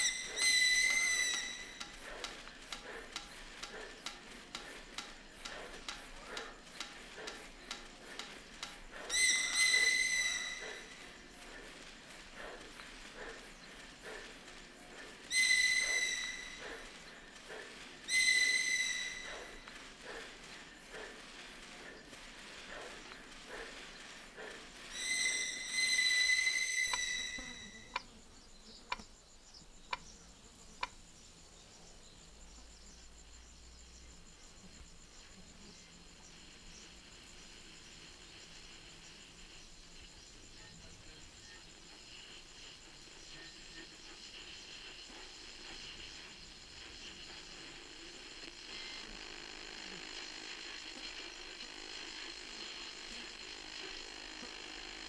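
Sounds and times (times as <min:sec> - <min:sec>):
paper whistle squealing: 0:00.0 - 0:01.8, 0:09.1 - 0:11.0, 0:15.3 - 0:16.6, 0:18.1 - 0:19.6, 0:24.8 - 0:28.0
soft ticks: 0:01.3 - 0:08.9, 0:28.9 - 0:29.1, 0:29.9 - 0:30.1
high whistle-like tone: 0:25.0 - 0:28.0.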